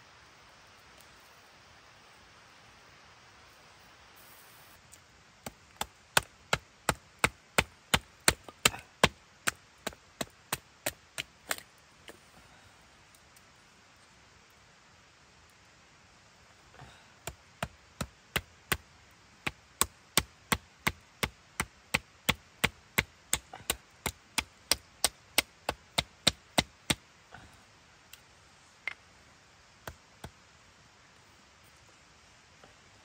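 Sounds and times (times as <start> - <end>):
rapid chopping strikes: 5.4 - 11.6, 19.4 - 27.0.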